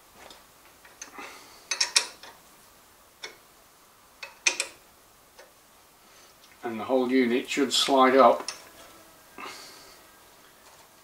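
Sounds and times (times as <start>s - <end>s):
spanner clicking on metal nut: 1.7s - 2.4s, 4.2s - 4.8s, 8.4s - 8.7s.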